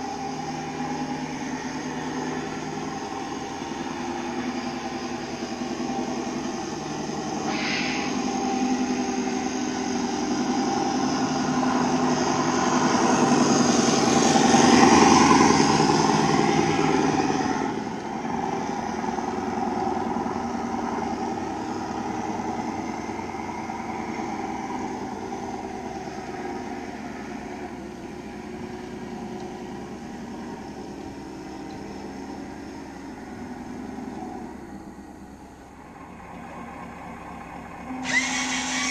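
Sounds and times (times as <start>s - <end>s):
simulated diesel engine note: 0.0s - 28.9s
short hiss: 7.5s - 8.4s.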